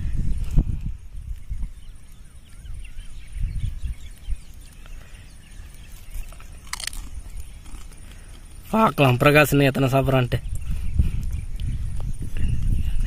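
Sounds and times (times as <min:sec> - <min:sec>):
faint bird chirps: 0:00.0 - 0:08.8
wind rumble on microphone: 0:00.0 - 0:13.0.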